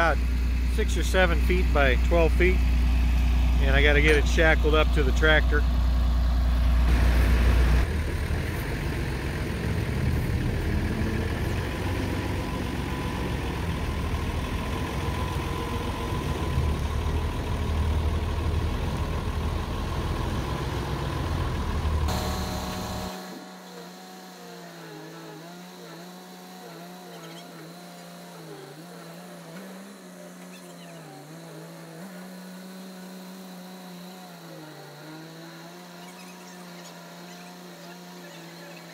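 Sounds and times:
forklift engine rumbling: 0:00.0 - 0:33.2
faint wavering pitched sound: 0:22.1 - 0:25.0.

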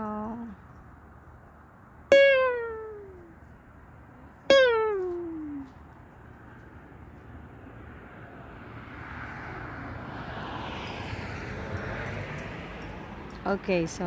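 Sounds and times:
distant passing engine: 0:01.4 - 0:14.0.

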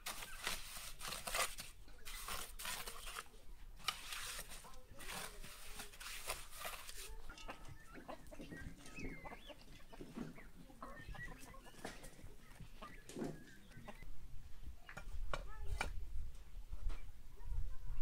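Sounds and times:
trowel scraping mortar: 0:00.0 - 0:07.8
chickens and turkeys clucking: 0:04.6 - 0:16.0.

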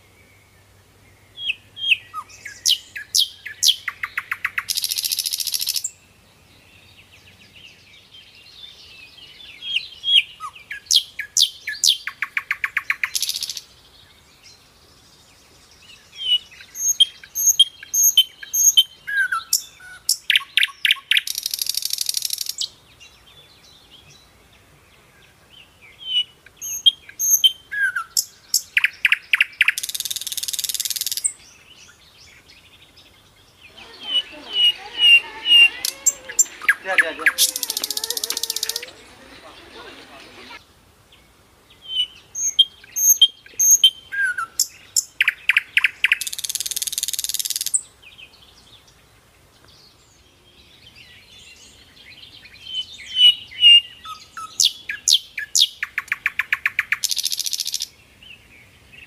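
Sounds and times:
birds chirping and whistling: 0:01.3 - 0:06.0, 0:15.8 - 0:22.6, 0:26.0 - 0:32.0, 0:33.5 - 0:40.6, 0:41.8 - 0:47.8
harsh rasping bird call: 0:33.6 - 0:40.6.

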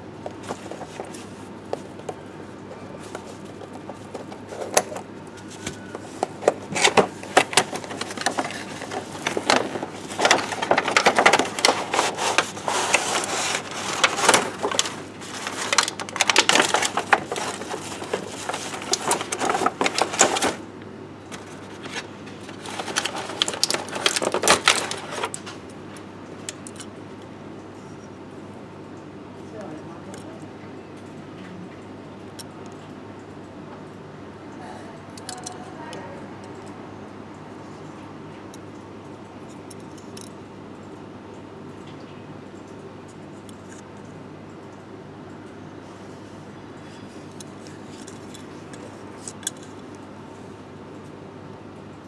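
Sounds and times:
plastic toy pieces clattering: 0:06.8 - 0:20.6, 0:21.8 - 0:25.4.

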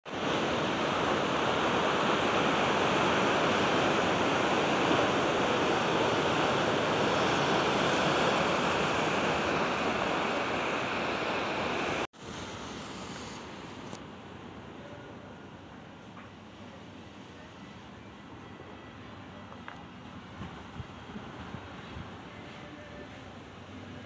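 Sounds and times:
ocean surf rushing: 0:00.0 - 0:14.8.

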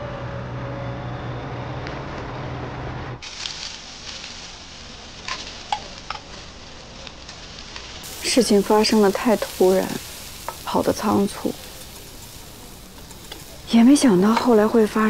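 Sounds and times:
background music: 0:00.0 - 0:03.2
meat sizzling on charcoal grill: 0:03.2 - 0:15.0
metal skewers and tongs clicking: 0:09.3 - 0:09.7, 0:11.8 - 0:14.8.

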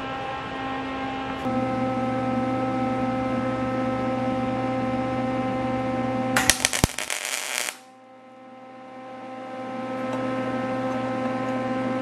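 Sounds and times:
electrical hum: 0:05.8 - 0:11.2
welding arc crackling: 0:06.4 - 0:07.9.

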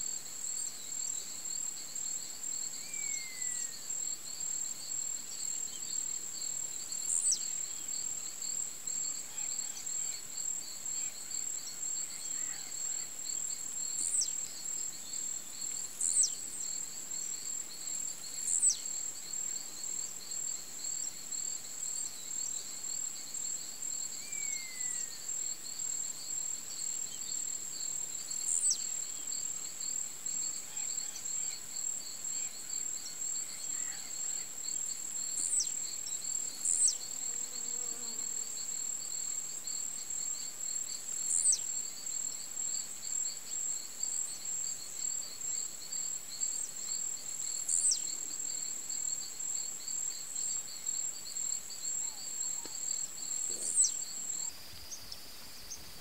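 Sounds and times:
high pulsing insect trill: 0:09.2 - 0:56.0.

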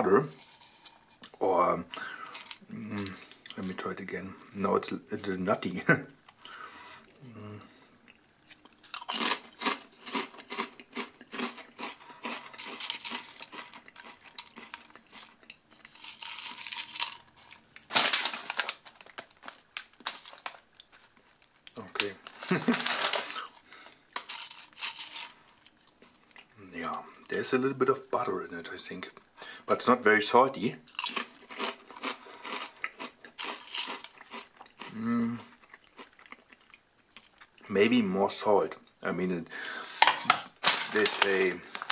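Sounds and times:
plastic chip bag crinkling: 0:02.0 - 0:03.8, 0:08.5 - 0:26.2, 0:30.9 - 0:34.9, 0:40.0 - 0:41.9
person humming: 0:07.2 - 0:07.7, 0:34.9 - 0:35.5
potato chips crunching: 0:08.5 - 0:26.5, 0:30.8 - 0:37.6, 0:40.0 - 0:41.9.

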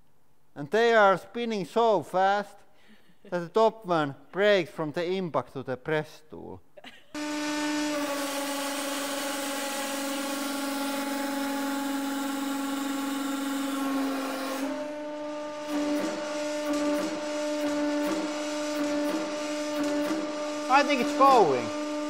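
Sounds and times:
hydraulic press motor humming: 0:07.2 - 0:22.0.

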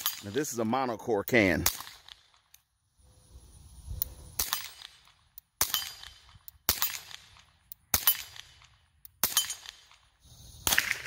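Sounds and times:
suppressed pistol shots: 0:01.6 - 0:02.4, 0:04.4 - 0:11.0.

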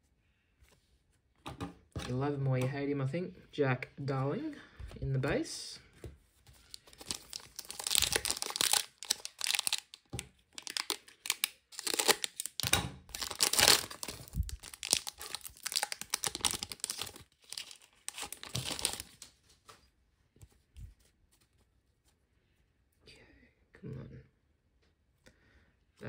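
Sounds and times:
foil wrapper tearing and crinkling: 0:06.7 - 0:19.3.

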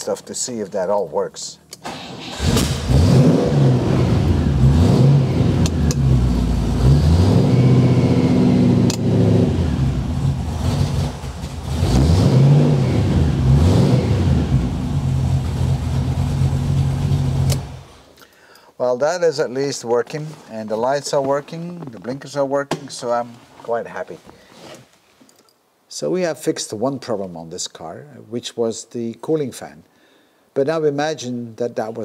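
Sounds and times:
car engine revving: 0:01.9 - 0:18.0.

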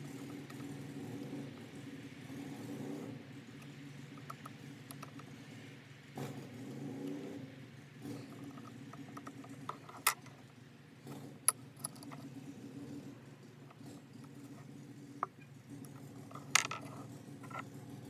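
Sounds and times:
small metal clicks and ticks: 0:03.6 - 0:05.3, 0:08.3 - 0:10.5, 0:11.4 - 0:12.3.

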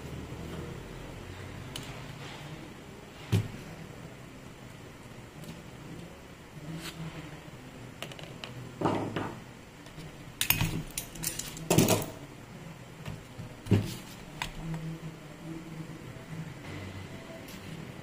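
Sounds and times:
metal parts clinking: 0:10.4 - 0:12.1.

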